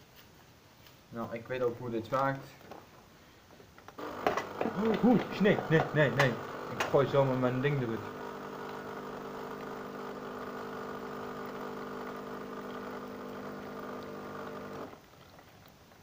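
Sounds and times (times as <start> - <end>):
electric motor hum: 4.0 - 15.0.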